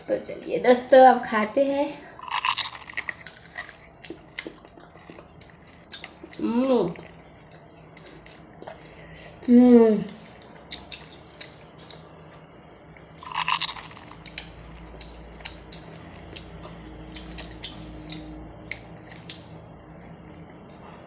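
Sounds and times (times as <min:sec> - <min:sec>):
crunching corn on the cob: 0:02.2 - 0:04.6, 0:13.2 - 0:14.4.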